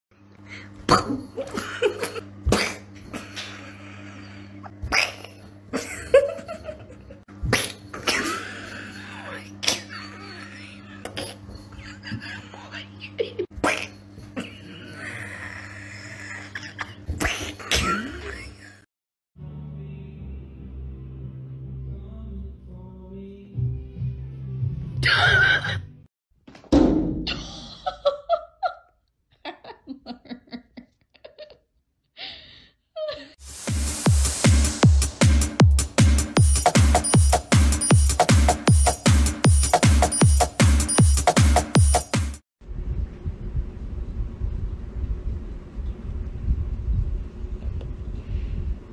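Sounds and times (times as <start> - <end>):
person laughing: 0.9 - 4.0, 5.0 - 18.8, 27.2 - 31.7.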